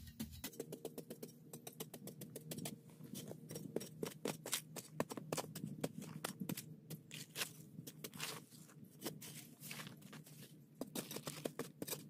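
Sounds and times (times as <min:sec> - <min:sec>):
metal blade scraping dried mud: 0:03.1 - 0:12.0.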